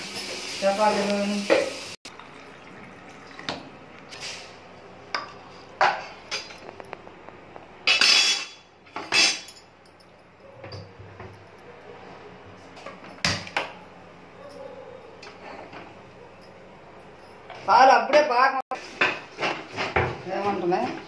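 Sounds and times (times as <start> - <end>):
steel kitchen vessels clinking: 4.2 - 6.9, 7.8 - 11.7.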